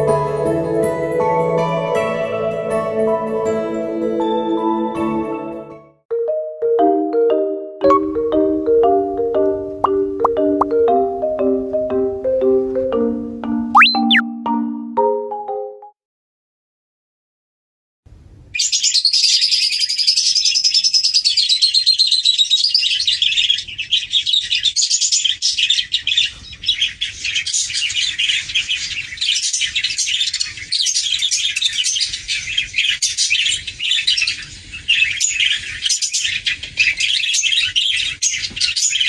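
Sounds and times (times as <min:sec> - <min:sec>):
small birds chirping and twittering: 0:18.6 - 0:39.0.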